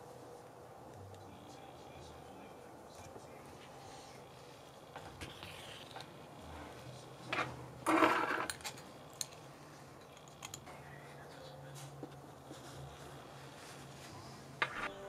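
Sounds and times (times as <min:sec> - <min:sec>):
fabric and thread rustling: 0:11.8 - 0:14.9.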